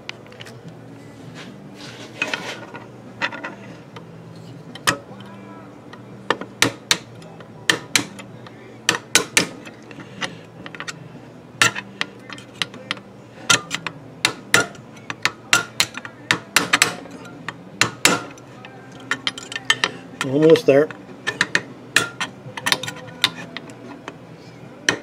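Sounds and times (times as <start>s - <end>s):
steady low hum: 0.0s - 25.0s
hammer tapping metal: 6.3s - 8.3s, 8.9s - 9.6s, 11.6s - 18.4s, 21.3s - 23.7s.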